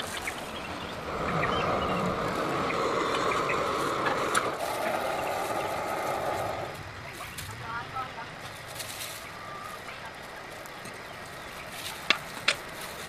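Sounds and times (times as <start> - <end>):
gas burner flame hissing: 0.0 - 8.1.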